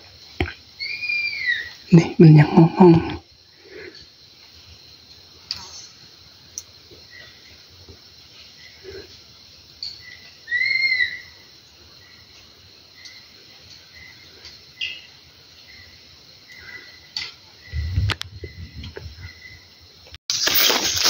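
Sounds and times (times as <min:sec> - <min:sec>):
loud rising and falling call: 0:10.5 - 0:11.3.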